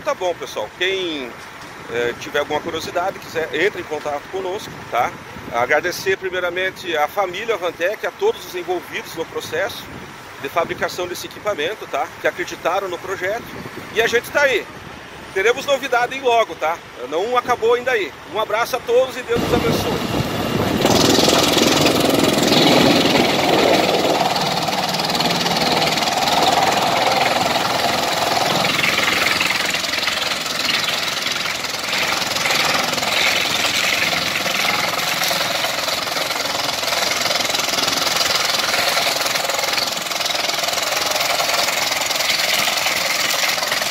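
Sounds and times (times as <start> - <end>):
wood chipper chipping logs: 19.4 - 43.9.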